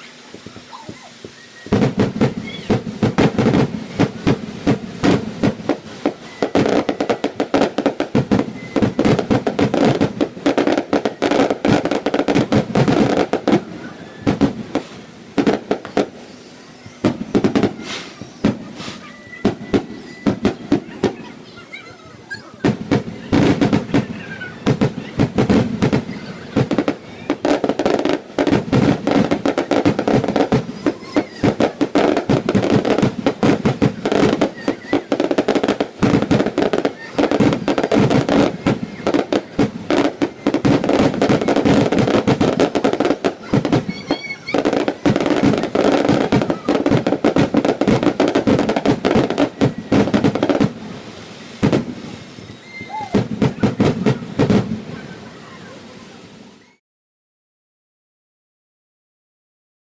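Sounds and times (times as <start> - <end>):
fireworks bursting and crackling: 0.0 - 56.8.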